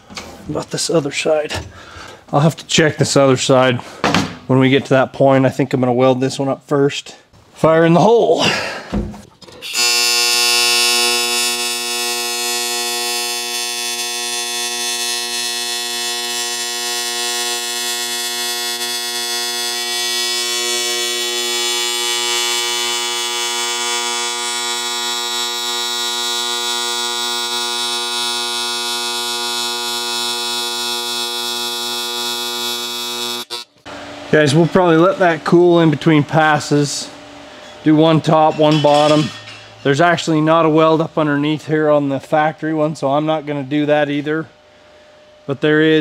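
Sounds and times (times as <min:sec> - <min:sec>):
welding arc buzz and hiss: 0:09.6 - 0:35.9.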